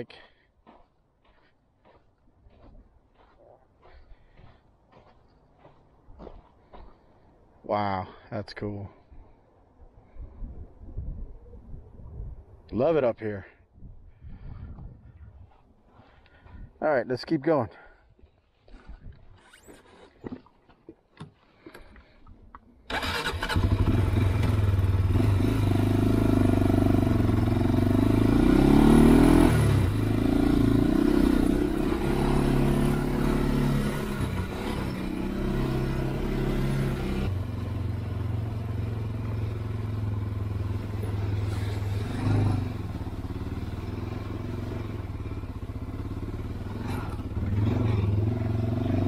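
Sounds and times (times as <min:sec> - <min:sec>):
quad bike engine revving: 0:22.9 - 0:49.0.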